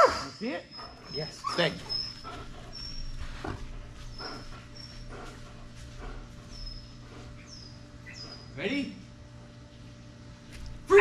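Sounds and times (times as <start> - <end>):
dog whining: 0.0 - 5.4.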